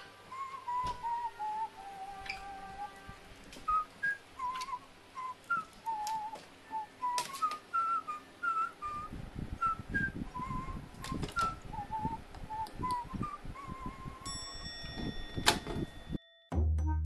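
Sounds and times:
whistled tune: 0:00.3 - 0:02.9, 0:03.7 - 0:14.7.

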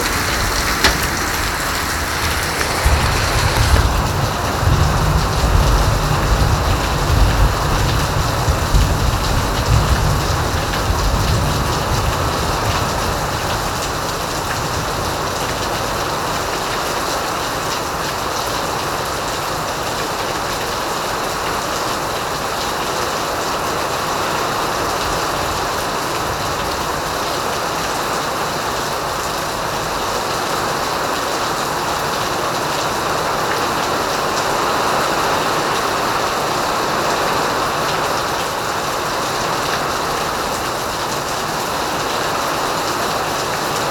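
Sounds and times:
rain falling: 0:00.0 - 0:43.9.

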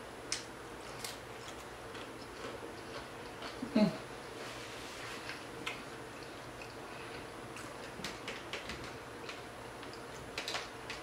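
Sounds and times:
tortilla chips crunching: 0:00.8 - 0:03.7.

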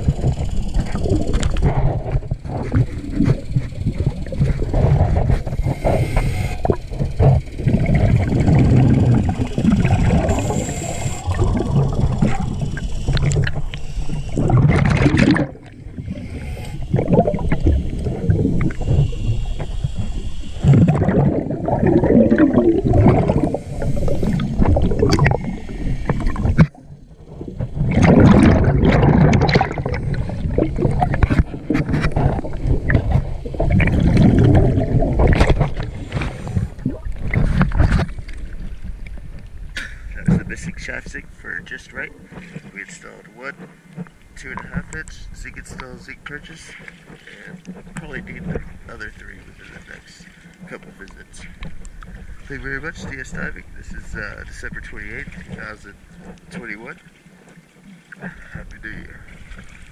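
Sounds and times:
underwater regulator breathing: 0:00.0 - 0:26.7, 0:27.9 - 0:38.0, 0:58.2 - 0:59.4
bubbles gurgling underwater: 0:00.0 - 0:40.8.

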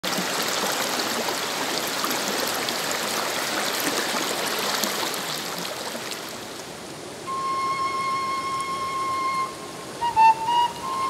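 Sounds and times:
small water splashes: 0:00.0 - 0:06.8
river rushing over rocks: 0:00.0 - 0:11.0.

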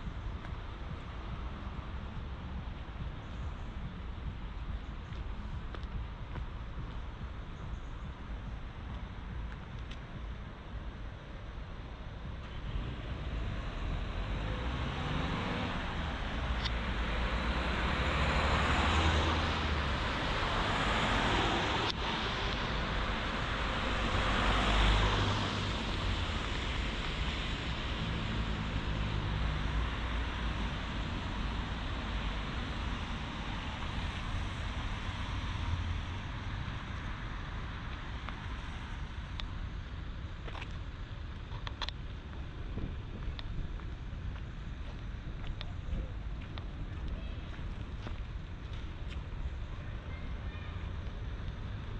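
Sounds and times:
cars driving past: 0:12.4 - 0:39.9.

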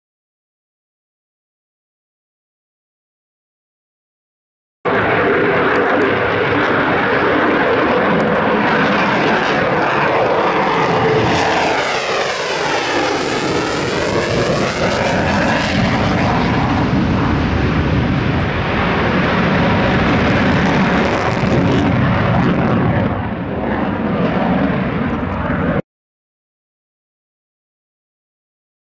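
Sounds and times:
jet engines roaring at full power: 0:04.9 - 0:25.8.

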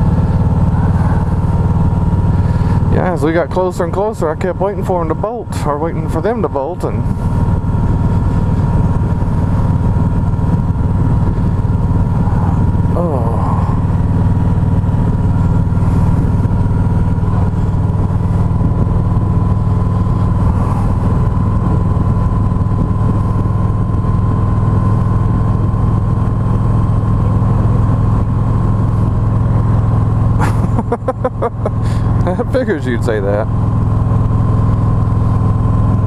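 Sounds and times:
vehicle engine droning: 0:00.0 - 0:36.0.

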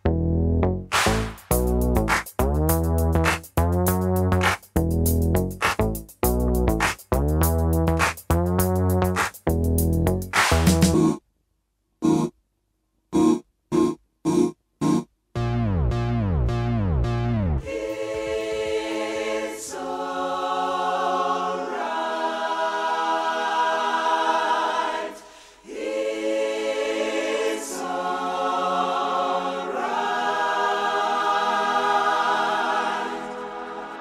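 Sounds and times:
choir holding long chords: 0:17.6 - 0:34.0.

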